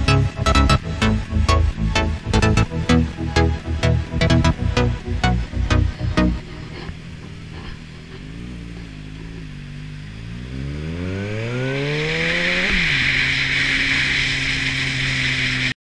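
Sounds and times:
motorcycle engine accelerating: 0:00.0 - 0:15.8
rushing wind noise: 0:11.9 - 0:15.7.

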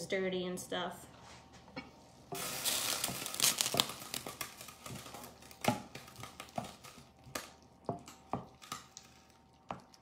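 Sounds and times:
sauce sizzling: 0:02.3 - 0:05.7.

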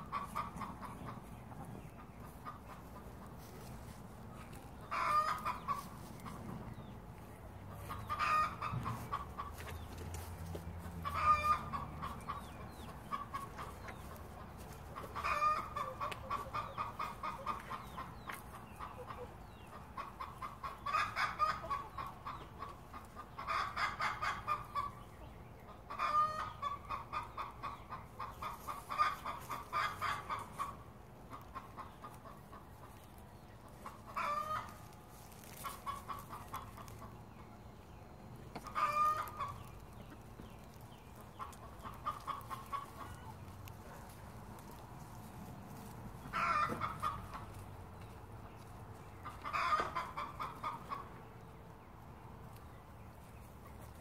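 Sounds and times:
hens clucking: 0:00.0 - 0:54.0.

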